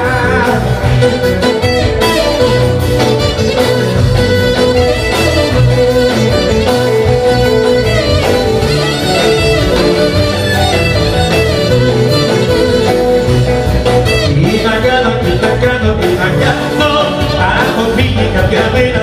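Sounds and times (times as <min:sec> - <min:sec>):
live band dance music: 0:00.0 - 0:19.0
violin melody: 0:00.9 - 0:14.5.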